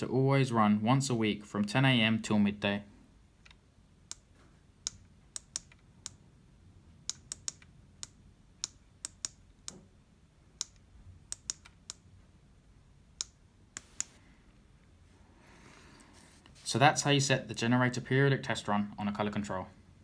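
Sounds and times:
control panel button clicks: 13.2s - 14.2s.

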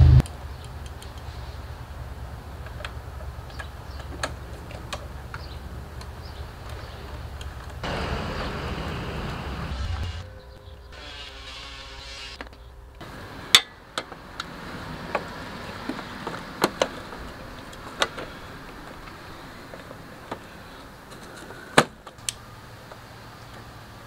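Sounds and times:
plastic parts clicking and knocking: 2.6s - 7.8s, 15.1s - 20.5s.

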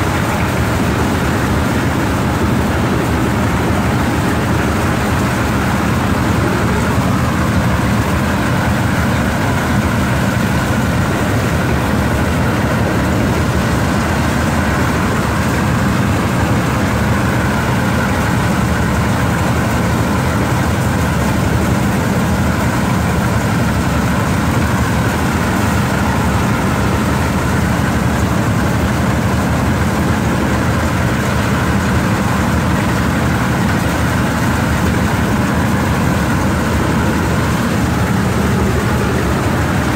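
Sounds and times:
rice thresher engine running: 0.0s - 39.9s.

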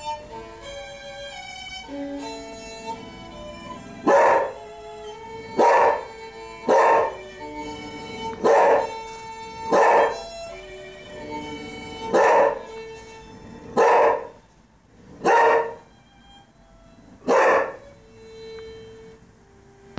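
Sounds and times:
music with long held notes: 0.0s - 19.9s
dog barking: 4.0s - 4.6s, 5.6s - 7.2s, 8.4s - 9.0s, 9.7s - 10.2s, 12.1s - 12.7s, 13.8s - 14.4s, 15.2s - 15.9s, 17.2s - 17.8s.

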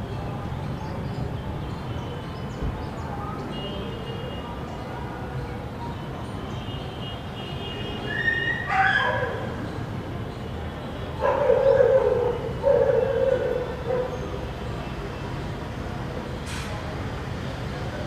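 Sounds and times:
animal cries: 8.1s - 9.4s.

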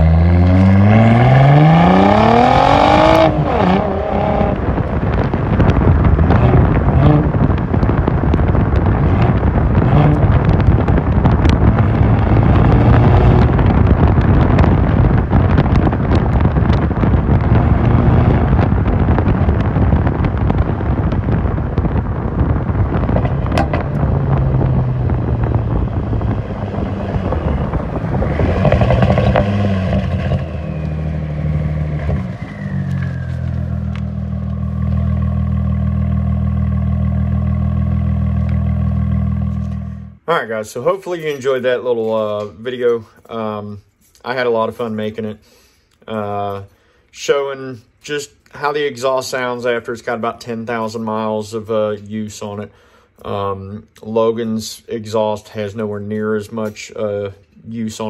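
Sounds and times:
car exhaust revving: 0.0s - 40.3s.

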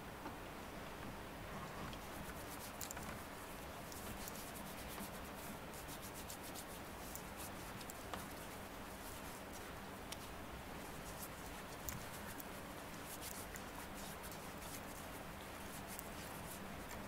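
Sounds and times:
steady low hiss: 0.0s - 17.0s
faint rustling: 1.4s - 17.0s.

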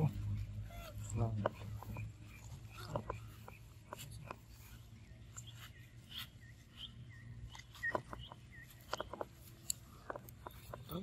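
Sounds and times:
bird chirping: 0.0s - 11.0s
sharp clicks: 7.5s - 11.0s.

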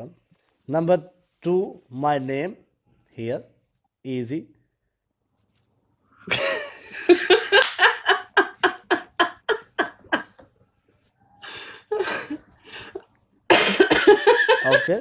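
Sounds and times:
hearty laughter: 13.8s - 15.0s.

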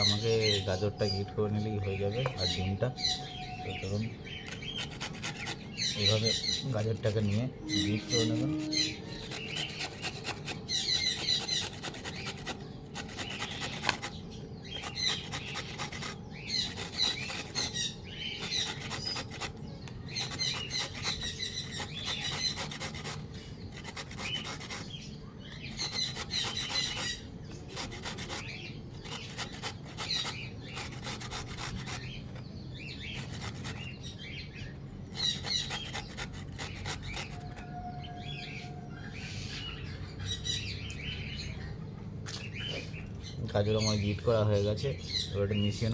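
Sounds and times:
birds chirping: 0.0s - 45.9s
carrot grating on metal grater: 4.4s - 32.2s, 33.0s - 34.0s, 35.2s - 37.6s.

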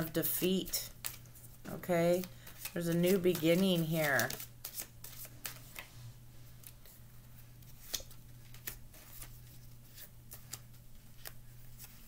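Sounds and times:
low steady hum: 0.0s - 12.0s
cards clicking and slapping: 2.1s - 5.8s, 7.7s - 9.3s, 9.9s - 12.0s.

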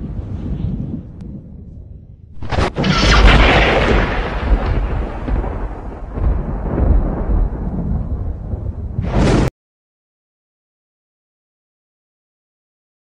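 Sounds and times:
deep rolling thunder rumble: 0.0s - 9.5s
thunder crack: 2.4s - 9.5s.

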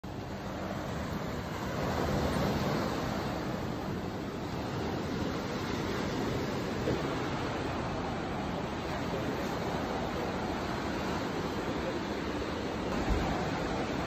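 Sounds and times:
waves breaking on shore: 0.0s - 14.0s.

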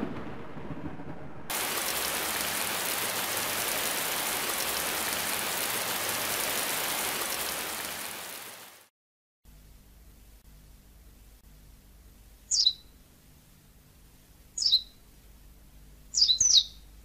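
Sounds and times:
heavy rain: 0.0s - 8.9s.

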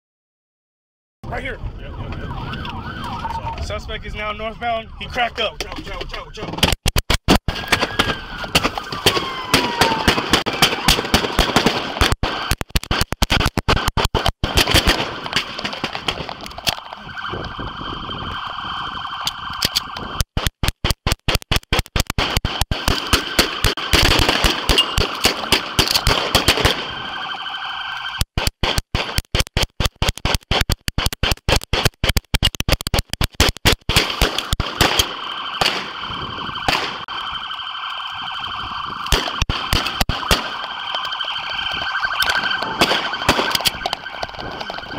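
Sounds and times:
rapid gunfire volleys: 6.7s - 16.4s, 20.3s - 27.0s, 28.3s - 36.0s, 39.1s - 40.7s, 41.7s - 44.8s.

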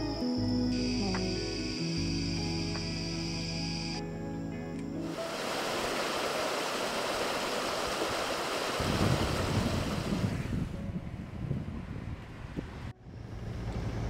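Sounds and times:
rushing water hiss: 5.0s - 10.6s
wind buffeting microphone: 8.0s - 14.0s.

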